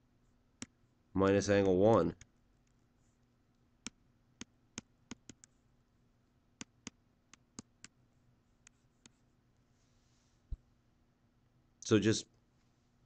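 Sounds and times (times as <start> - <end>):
faint steady hum: 0.0 - 13.0
stylus tapping on tablet screen: 3.8 - 5.6, 6.6 - 8.0, 8.6 - 9.2.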